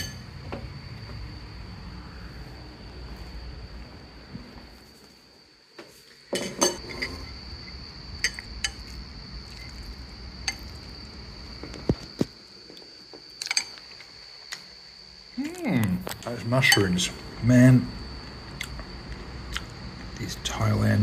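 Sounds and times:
steady high whine: 0.0s - 21.0s
utensils clinking on ceramic bowl: 6.3s - 7.2s.

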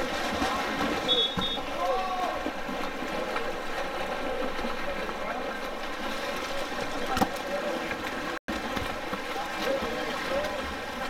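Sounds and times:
splashing water: 0.0s - 11.0s.

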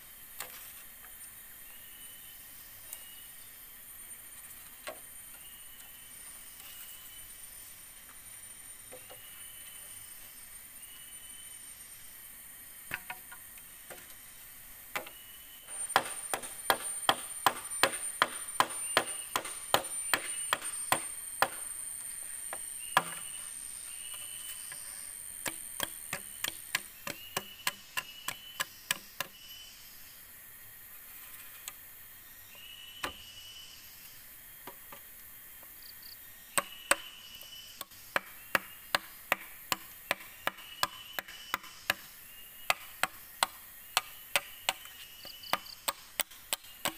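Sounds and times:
high insect buzz: 0.0s - 46.9s
blade chopping bamboo: 15.7s - 21.7s, 25.4s - 29.4s, 37.8s - 46.9s.

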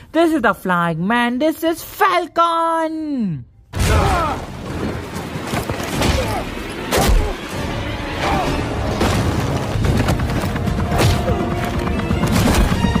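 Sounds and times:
film soundtrack music: 3.5s - 13.0s.

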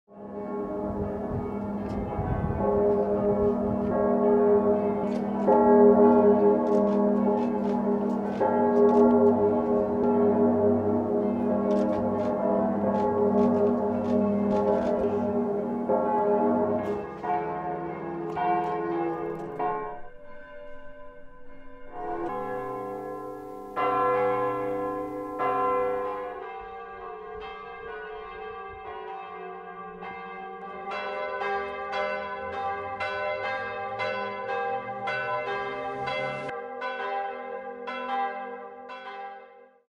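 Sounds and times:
deep church bells ringing: 0.1s - 39.9s
higher bells pealing: 0.3s - 18.5s, 20.1s - 26.4s, 31.0s - 36.5s.

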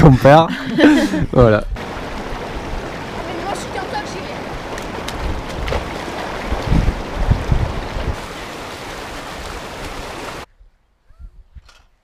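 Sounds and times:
stream rushing over rocks: 1.8s - 10.5s.

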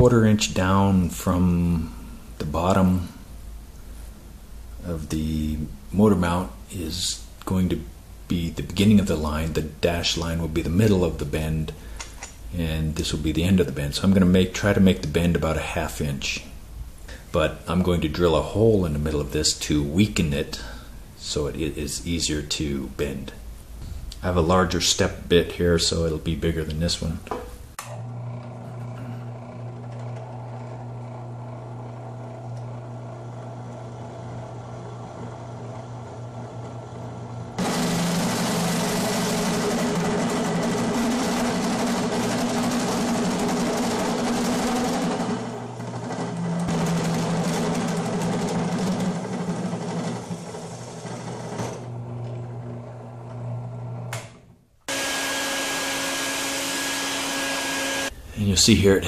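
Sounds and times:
drill press boring metal: 27.9s - 53.9s, 54.9s - 58.1s
vacuum cleaner sucking: 37.6s - 51.9s, 54.9s - 58.2s.

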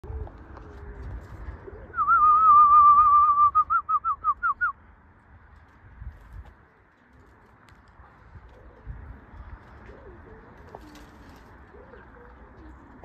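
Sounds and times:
person whistling: 2.0s - 4.7s.

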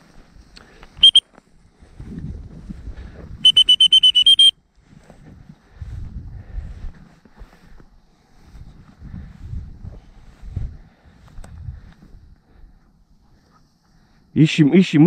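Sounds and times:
rustling through tall grass: 0.0s - 14.6s
high-pitched whistle pulses: 1.0s - 1.2s, 3.4s - 4.6s.

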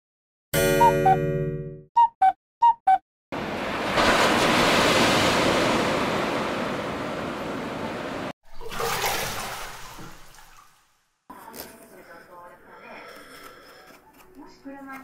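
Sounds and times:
waves breaking on shore: 3.4s - 10.7s.

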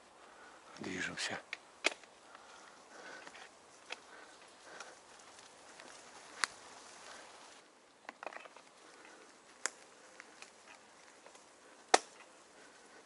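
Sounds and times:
bicycle tyres hissing on dirt: 0.0s - 13.0s
bicycle clicks and knocks: 8.0s - 12.3s.

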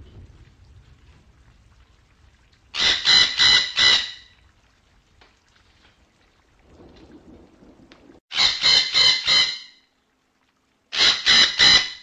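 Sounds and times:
parrot squawking: 2.8s - 4.2s, 8.3s - 9.8s, 10.9s - 12.0s.

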